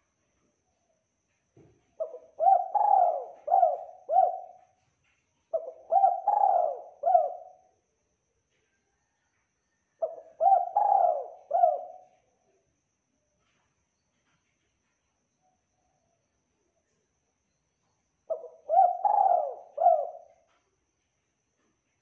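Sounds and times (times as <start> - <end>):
dove cooing: 2.0 - 4.8, 5.5 - 7.6, 10.0 - 12.2, 18.3 - 20.4.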